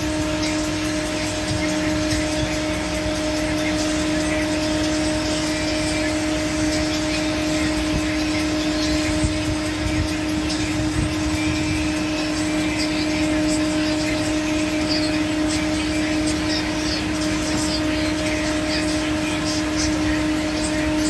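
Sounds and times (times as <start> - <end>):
machinery drone: 0.0 - 21.0.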